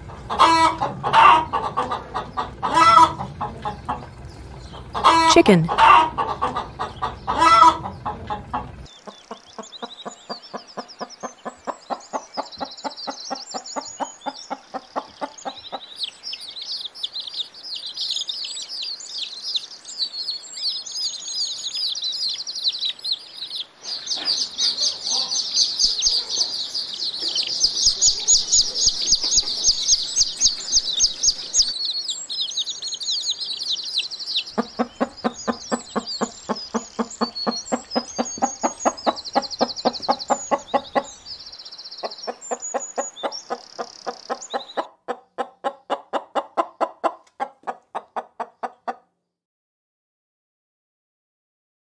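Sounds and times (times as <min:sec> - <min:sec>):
chickens clucking: 0:00.0 - 0:49.1
high-pitched chirping: 0:23.9 - 0:44.9.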